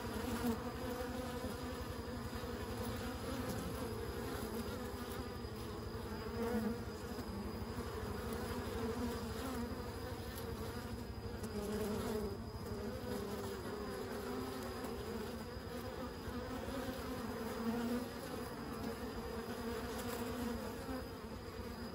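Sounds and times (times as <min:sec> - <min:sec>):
bees buzzing: 0:00.0 - 0:21.9.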